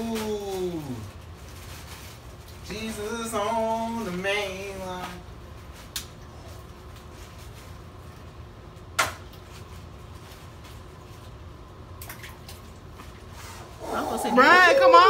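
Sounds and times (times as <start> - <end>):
water moving and dripping: 9.3 - 15.0.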